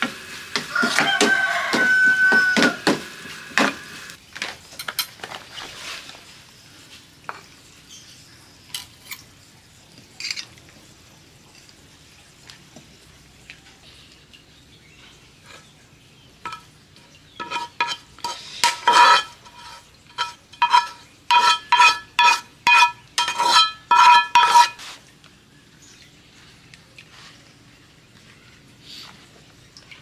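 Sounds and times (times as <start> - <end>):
metal utensil scraping frying pan: 16.4 - 25.0.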